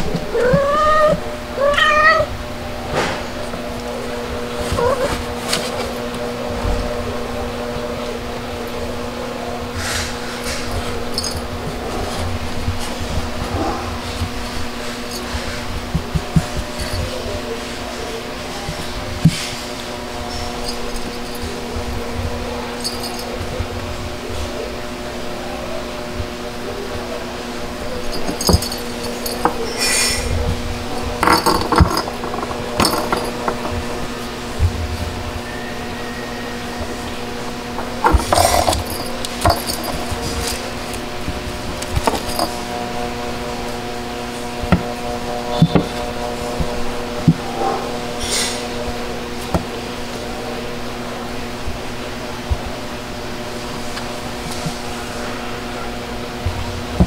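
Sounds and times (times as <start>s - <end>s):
steady low hum: 0.0s - 57.0s
light clinks: 28.0s - 30.3s, 37.8s - 40.8s.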